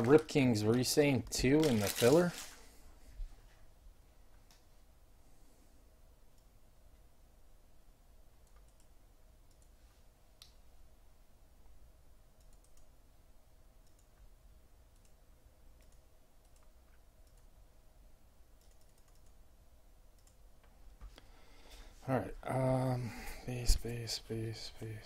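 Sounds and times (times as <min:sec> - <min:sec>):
faint scattered clicks: 0:08.4 - 0:09.8, 0:13.8 - 0:14.3, 0:15.8 - 0:17.5, 0:18.6 - 0:19.4, 0:20.2 - 0:20.8.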